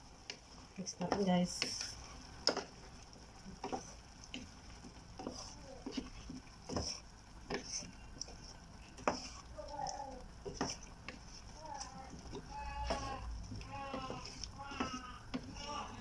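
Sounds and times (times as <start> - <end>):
spatula stirring food in pan: 0.0 - 16.0.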